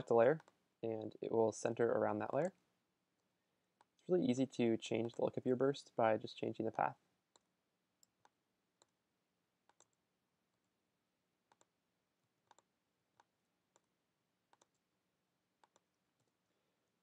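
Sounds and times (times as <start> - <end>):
computer mouse clicks: 0.4 - 1.2, 7.3 - 9.0, 9.6 - 10.7, 11.5 - 11.8, 12.4 - 14.9, 15.6 - 16.4.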